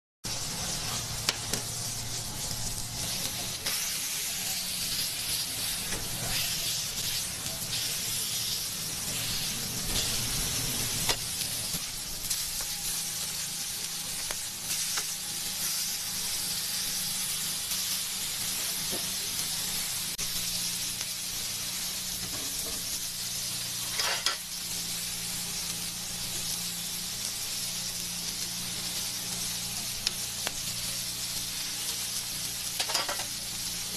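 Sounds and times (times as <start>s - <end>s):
patties sizzling on a griddle: 0.2s - 33.9s
metal utensils clicking on griddle: 23.9s - 24.5s, 32.7s - 33.4s.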